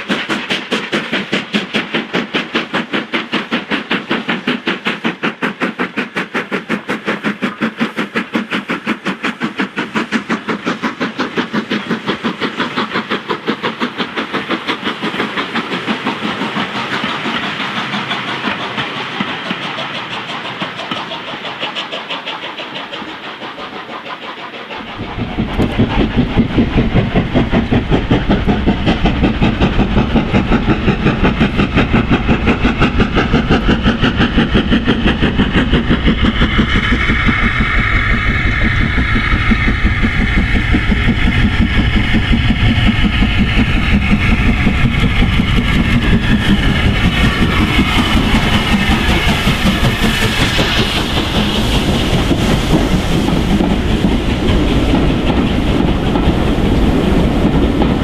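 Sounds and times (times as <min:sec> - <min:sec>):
steam locomotive exhaust beating: 0:00.0 - 0:58.0
wheels clacking over rail joints: 0:00.0 - 0:58.0.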